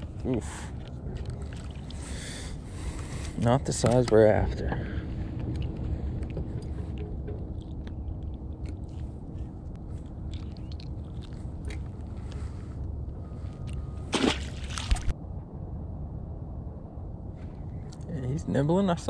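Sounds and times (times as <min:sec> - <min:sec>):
low rumble: 0:00.0 - 0:19.0
fish splashing into water: 0:14.1 - 0:15.1.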